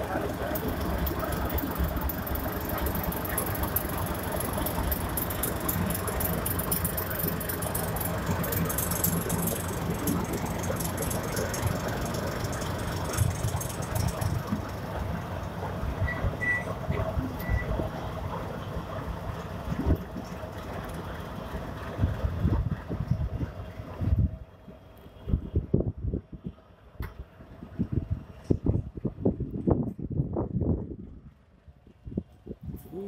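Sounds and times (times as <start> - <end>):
metallic clicking and rattling wheels: 0.0 - 24.1
diesel locomotive running: 0.0 - 33.0.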